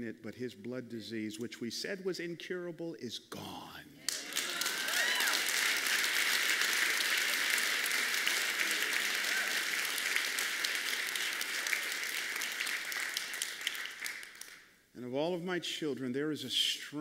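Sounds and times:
crowd applauding: 0:04.1 - 0:14.6.

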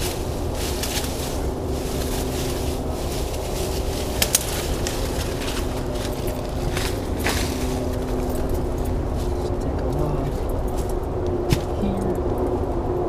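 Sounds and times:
twigs snapping: 0:00.0 - 0:10.0
dry leaves rustling and crackling: 0:00.0 - 0:12.2
low rumble: 0:00.0 - 0:13.0.

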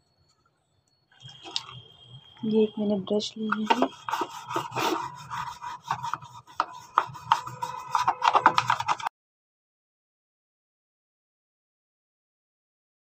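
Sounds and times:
toothbrush scrubbing plastic: 0:01.2 - 0:01.8, 0:02.4 - 0:09.1.

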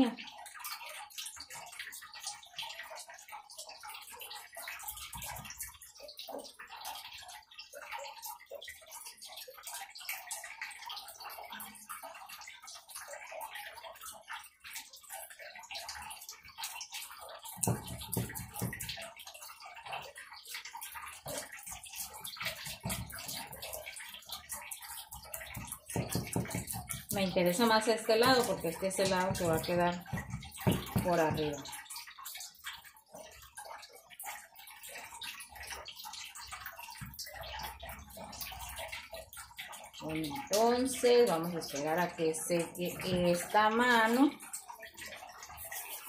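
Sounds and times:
sponge dabbing paint on wood: 0:25.5 - 0:31.6.

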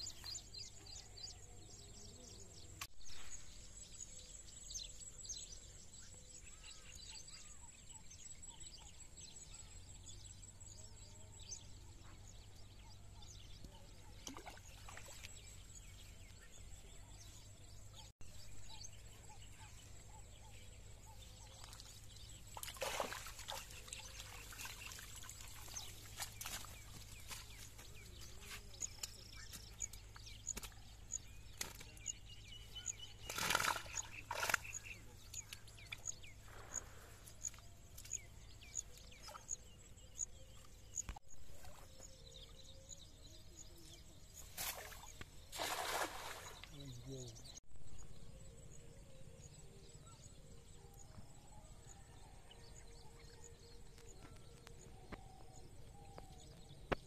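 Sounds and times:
water trickling and dripping: 0:21.5 - 0:27.8
water splashing off net: 0:22.6 - 0:26.5, 0:44.7 - 0:46.6.

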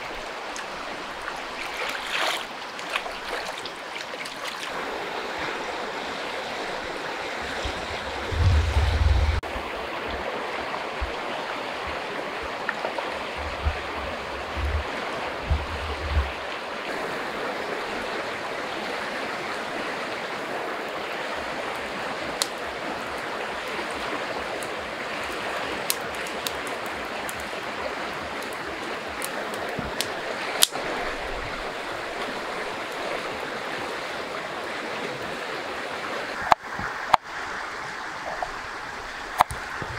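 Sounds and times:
river water flowing: 0:00.0 - 0:39.9
low thumps: 0:07.6 - 0:09.4, 0:14.5 - 0:16.4.

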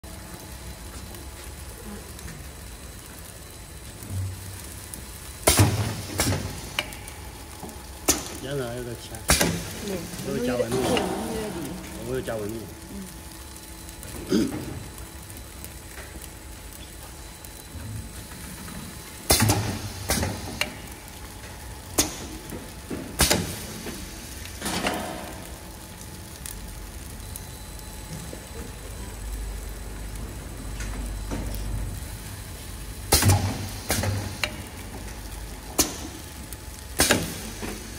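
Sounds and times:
low machine hum: 0:00.0 - 0:37.9.

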